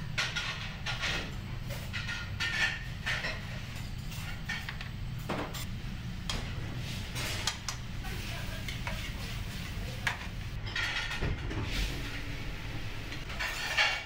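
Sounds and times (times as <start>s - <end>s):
low kitchen rumble: 0.0s - 14.0s
pan and utensils clattering: 0.2s - 5.6s, 6.3s - 12.2s, 13.2s - 14.0s.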